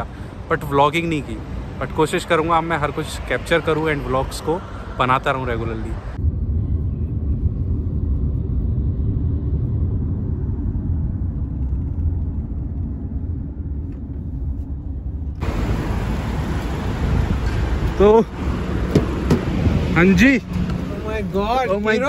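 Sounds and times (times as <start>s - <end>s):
hissy street noise: 0.0s - 6.2s, 15.4s - 22.0s
car road and engine rumble: 0.0s - 22.0s.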